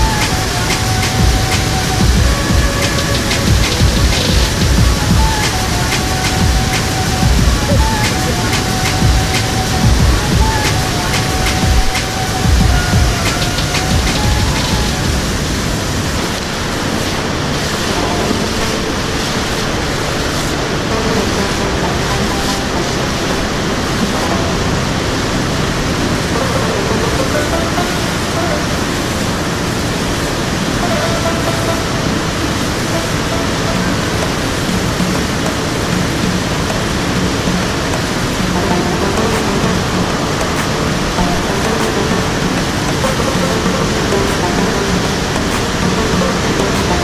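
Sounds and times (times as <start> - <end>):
river water rushing over rocks: 0.0 - 47.0.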